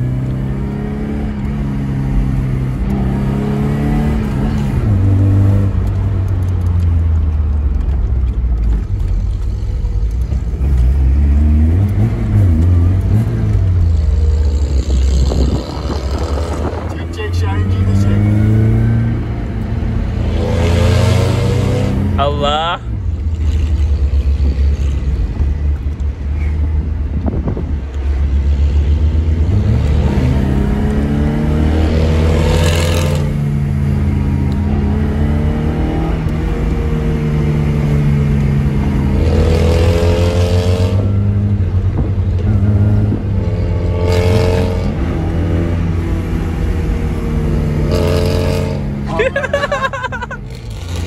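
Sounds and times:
car engine accelerating: 0.0s - 51.0s
rushes of noise: 7.4s - 22.2s.

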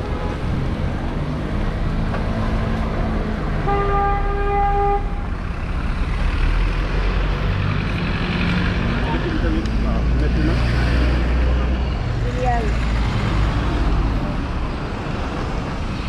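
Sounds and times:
city traffic rumble: 0.0s - 16.0s
car horn honk: 3.6s - 5.2s.

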